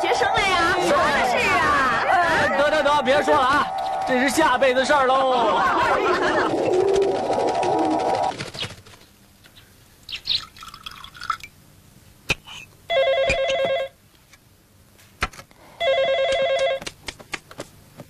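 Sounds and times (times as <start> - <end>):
telephone ringing: 12.9 - 14.0, 15.8 - 16.8.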